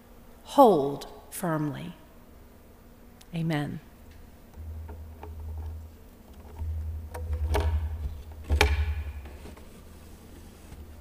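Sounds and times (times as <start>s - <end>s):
sharp knocks on wood: 7.1s - 9.5s.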